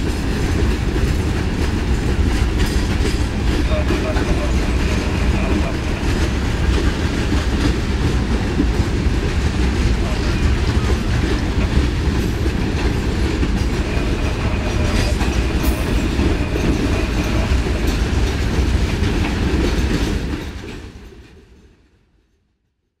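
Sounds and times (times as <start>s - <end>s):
freight train wheels clacking: 0.0s - 21.9s
high wheel squeal: 13.6s - 18.4s.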